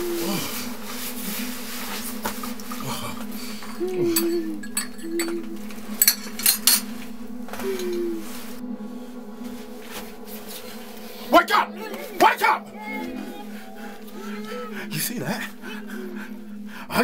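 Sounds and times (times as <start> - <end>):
low buzzing hum: 0.0 - 17.0
teaspoon clinking against teacup: 4.1 - 6.9.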